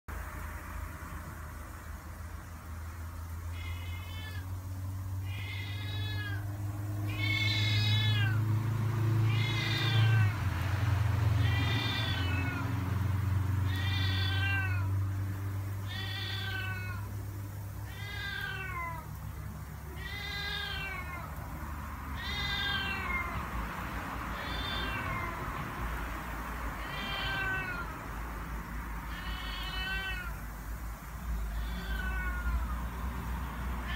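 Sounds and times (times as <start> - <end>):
cat meowing: 3.5 - 4.5, 5.2 - 8.4, 9.2 - 10.4, 11.4 - 12.7, 13.6 - 15.0, 15.8 - 17.1, 17.9 - 19.2, 19.8 - 21.4, 22.2 - 23.5, 24.3 - 25.4, 26.8 - 28.0, 29.1 - 30.4, 31.4 - 32.9.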